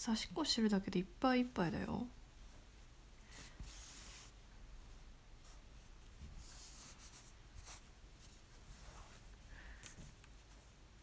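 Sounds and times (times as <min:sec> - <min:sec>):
cloth rustling: 0:02.4 - 0:04.4, 0:05.4 - 0:11.0.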